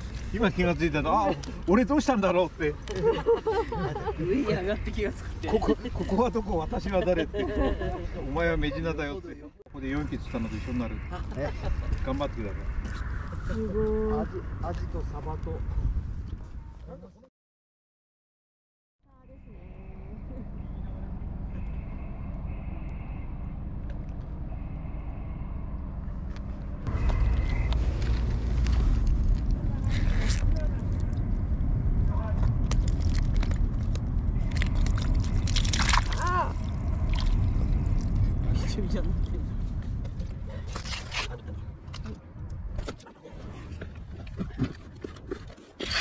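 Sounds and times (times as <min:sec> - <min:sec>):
steady low rumble: 0:00.0 - 0:16.9, 0:19.1 - 0:46.0
rustling and scraping of gear: 0:26.3 - 0:31.1, 0:39.6 - 0:42.2, 0:42.8 - 0:46.0.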